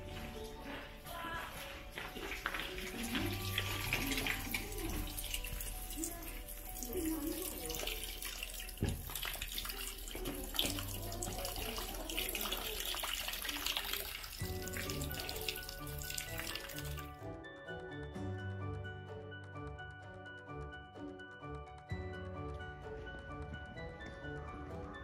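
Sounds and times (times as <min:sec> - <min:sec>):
water trickling into stone basin: 0:00.0 - 0:17.2
background music: 0:00.0 - 0:25.0.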